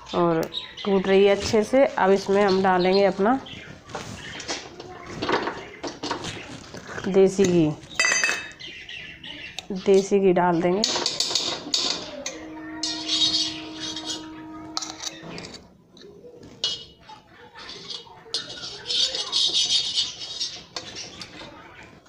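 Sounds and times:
steel spoon scraping and clinking: 10.8s - 17.0s, 17.6s - 21.4s
struck steel vessel ringing: 11.7s - 15.6s.

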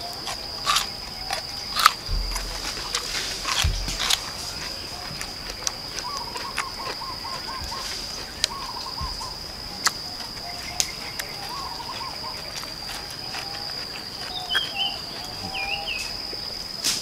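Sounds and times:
crunchy chewing: 0.0s - 17.0s
insect drone: 0.0s - 17.0s
bird warbling call: 6.0s - 9.4s, 10.4s - 12.5s, 14.3s - 16.1s.

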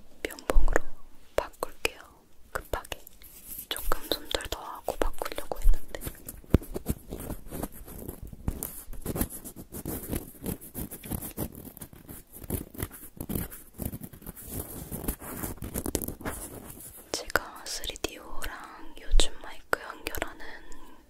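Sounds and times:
swabs scratching a microphone: 5.7s - 17.1s.

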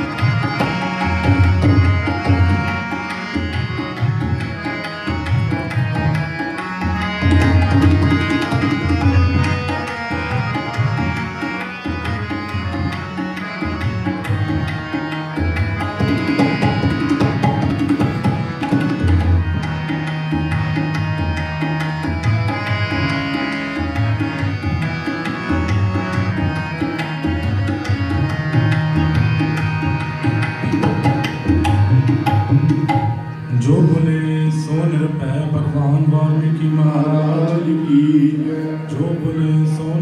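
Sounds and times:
tabla drumming: 0.0s - 39.8s
harmonium: 0.0s - 40.0s.

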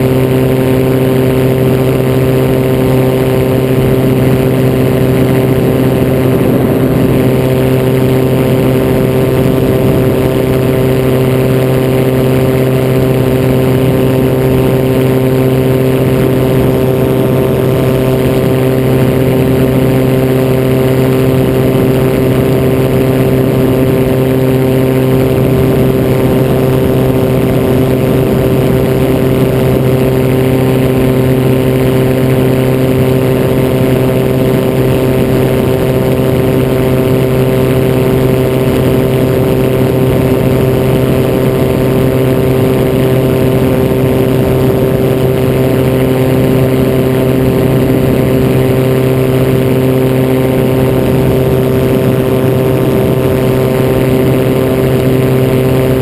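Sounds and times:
gyroplane engine and propeller: 0.0s - 56.0s.

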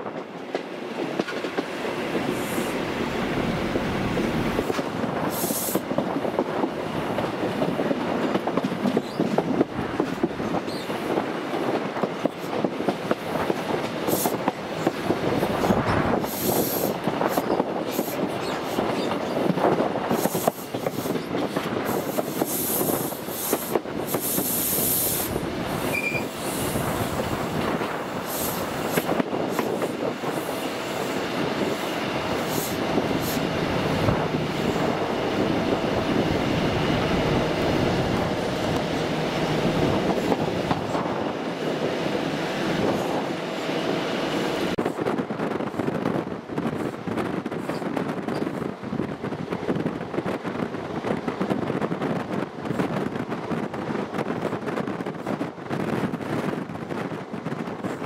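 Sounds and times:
rail clicks: 0.0s - 58.0s
train wheels rumbling on track: 0.0s - 58.0s
high wheel squeals: 25.9s - 26.4s.

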